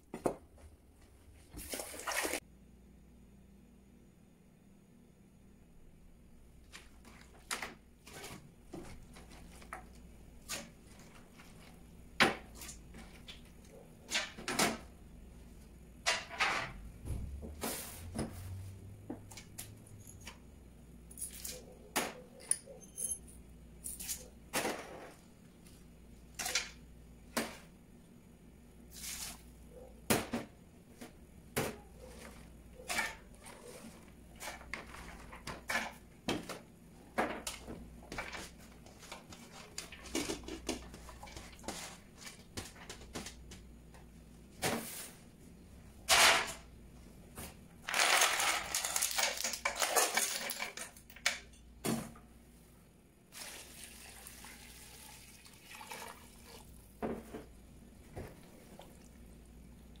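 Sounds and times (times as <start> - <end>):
ice cubes clattering into pot: 47.8 - 51.4.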